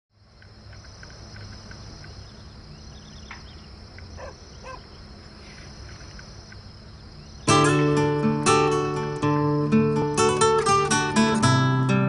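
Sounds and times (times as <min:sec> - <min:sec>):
crickets droning: 0:00.1 - 0:12.0
bird chirps: 0:00.7 - 0:07.8
low bird calls: 0:00.7 - 0:07.8.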